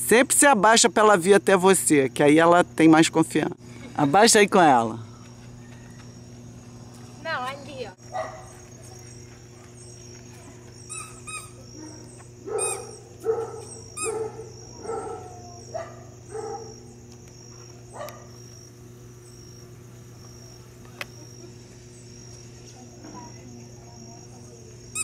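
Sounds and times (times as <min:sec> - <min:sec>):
small dog barking and yipping: 0:08.1 - 0:08.6, 0:10.9 - 0:16.9, 0:17.9 - 0:18.4.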